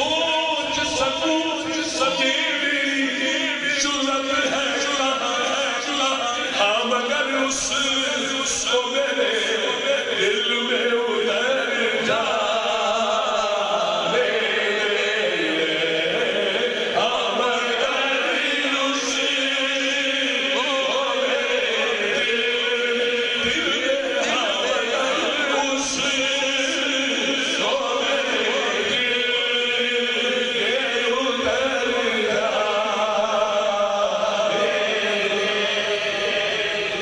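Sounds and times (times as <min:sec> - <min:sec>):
man chanting into a microphone: 0:00.0 - 0:36.2.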